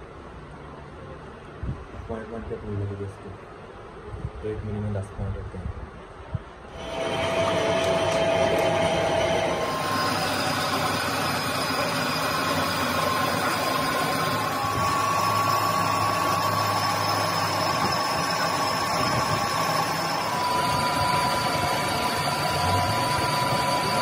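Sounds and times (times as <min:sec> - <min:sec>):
metal lathe cutting with whine: 0:06.8 - 0:24.0.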